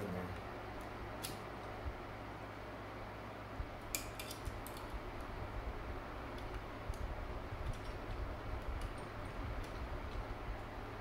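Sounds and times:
low steady hum: 0:00.0 - 0:11.0
small metal parts clicking: 0:03.9 - 0:05.0, 0:07.6 - 0:09.8.

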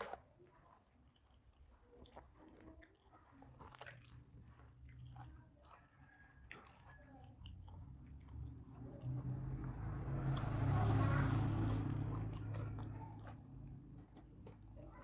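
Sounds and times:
person chewing: 0:00.0 - 0:15.0.

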